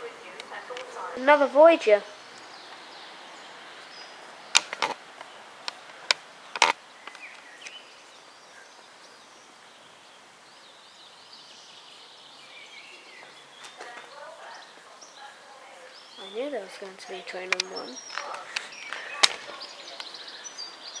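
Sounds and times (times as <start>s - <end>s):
quiet outdoor background noise: 0.0s - 21.0s
sharp clicks: 4.5s - 7.8s, 17.4s - 19.4s.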